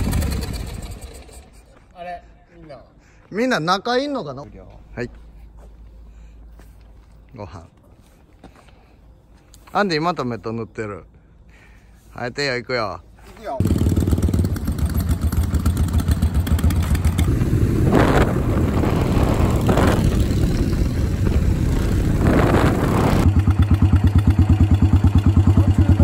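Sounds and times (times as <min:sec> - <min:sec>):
motorcycle engine idling: 0:13.6 - 0:17.7, 0:19.2 - 0:26.0
motorcycles accelerating: 0:13.6 - 0:26.0.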